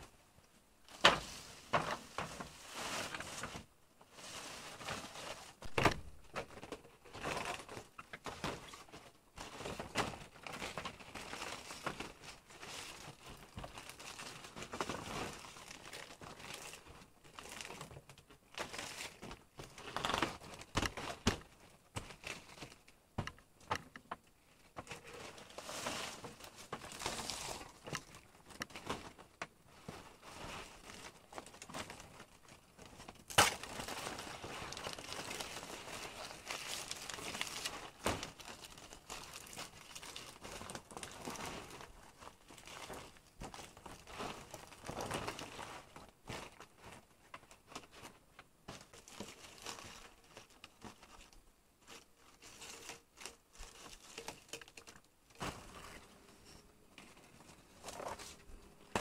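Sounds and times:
dry material crackling: 24.7 - 56.4.

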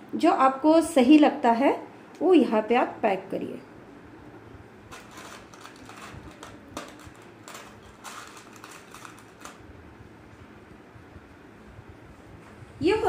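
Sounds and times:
hair rustling under fingers: 4.9 - 9.6.

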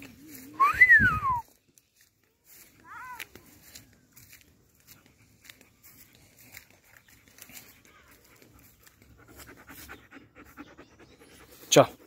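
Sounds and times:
footsteps in dry grass: 0.0 - 9.9
dog panting: 4.8 - 12.0.

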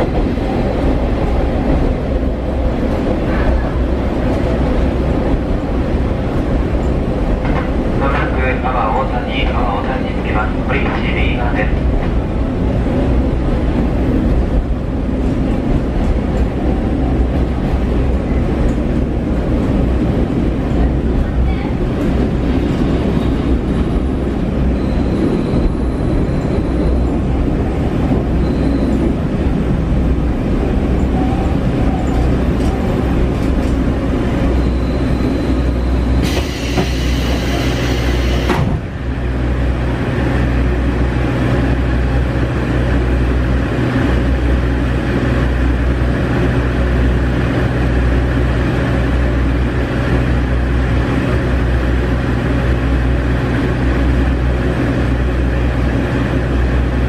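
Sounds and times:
diesel railcar engine running: 0.0 - 57.0.

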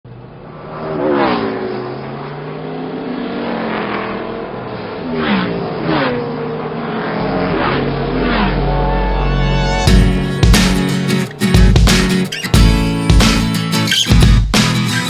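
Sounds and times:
race cars revving and zooming past: 0.1 - 9.9.

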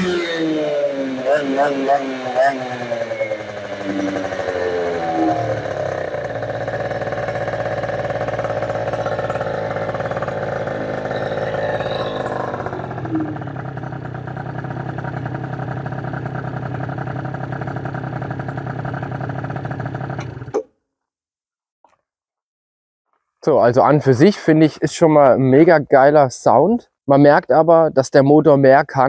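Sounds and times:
scooter engine revving: 0.0 - 20.5.

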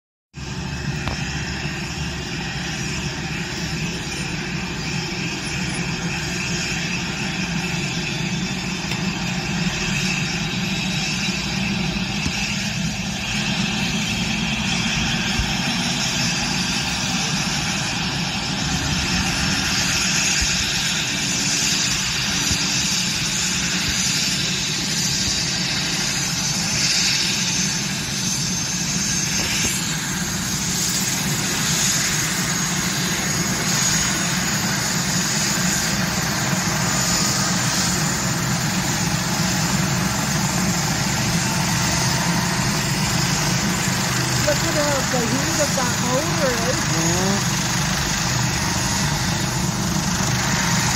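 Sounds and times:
helicopter engines running: 0.4 - 50.9.

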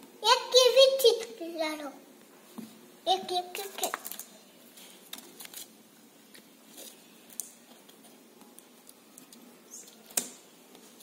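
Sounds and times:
rustling of magnetic letter sheet: 3.5 - 11.0.

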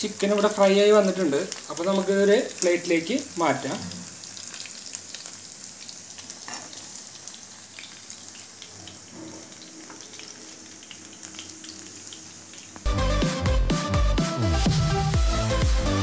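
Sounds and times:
oil sizzling and crackling: 0.0 - 14.0
loud music with a beat: 12.9 - 16.0.

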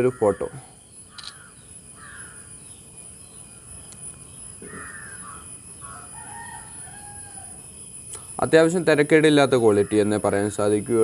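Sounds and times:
crow cawing: 0.0 - 2.6, 4.6 - 7.6, 9.7 - 10.2.

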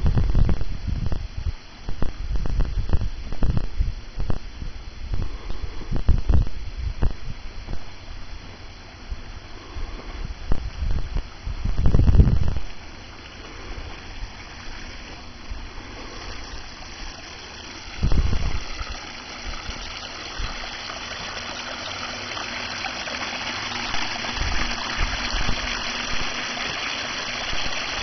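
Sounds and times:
low microphone rumbles: 0.0 - 14.4, 17.8 - 20.7.

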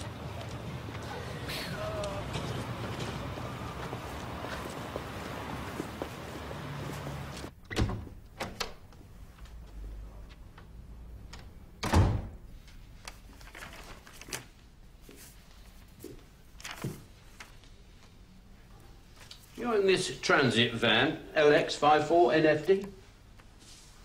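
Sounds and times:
steady background hiss: 0.0 - 7.6, 14.4 - 24.0.

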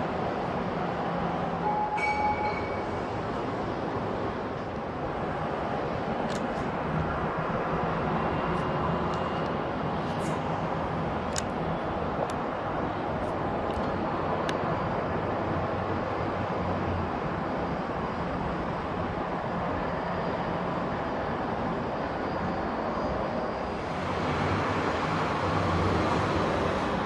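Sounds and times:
jet engines rumbling: 0.0 - 27.0
faint high whine: 1.3 - 5.7, 14.5 - 27.0.

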